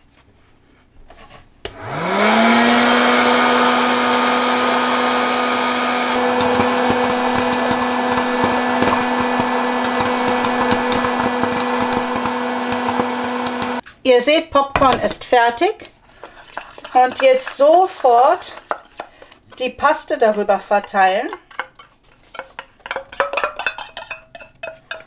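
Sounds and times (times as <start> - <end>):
popcorn maker fan whine: 1.7 - 13.8
kernels popping: 4.8 - 13.8.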